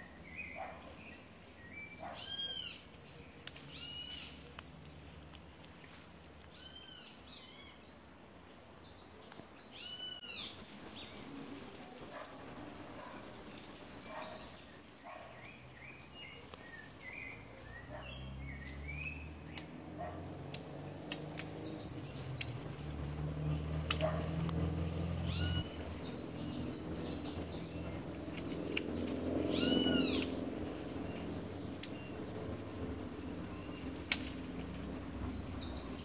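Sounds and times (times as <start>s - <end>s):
small birds chirping: 0.0s - 36.0s
drawn-out animal call: 21.8s - 25.6s, 27.9s - 35.9s.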